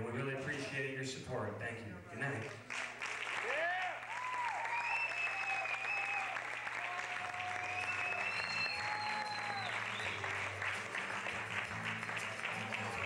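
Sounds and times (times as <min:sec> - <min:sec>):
audience applauding: 0:02.4 - 0:13.0
long whistles: 0:04.3 - 0:06.4, 0:07.4 - 0:10.4.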